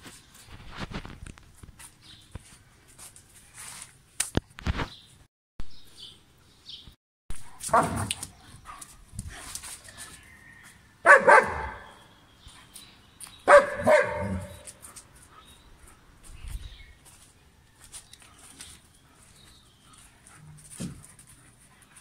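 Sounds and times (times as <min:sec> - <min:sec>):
dog barking: 0:07.7 - 0:08.1, 0:11.0 - 0:12.0, 0:13.5 - 0:14.7.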